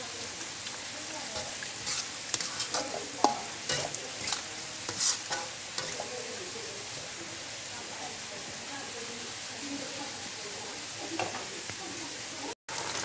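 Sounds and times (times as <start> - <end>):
vegetables sizzling: 0.0 - 13.0
spatula scraping a wok: 1.1 - 7.1.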